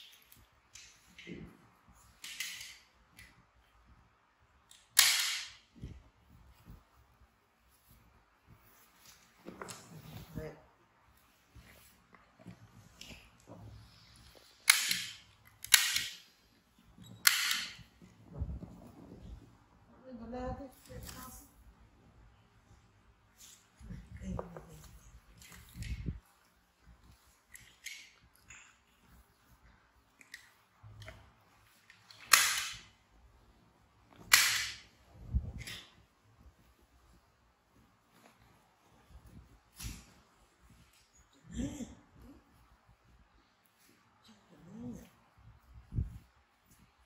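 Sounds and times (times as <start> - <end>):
sharp snaps: 4.6 - 5.9, 14.2 - 16.4
sharp cracks: 4.7 - 5.7, 14.6 - 16.3, 32.1 - 33.0, 34.2 - 34.9.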